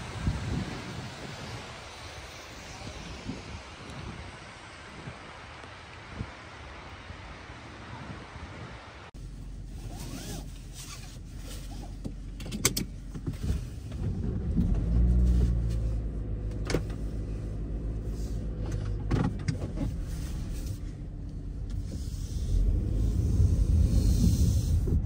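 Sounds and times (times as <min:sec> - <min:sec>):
car engine starting and idling: 0:09.2 - 0:25.0.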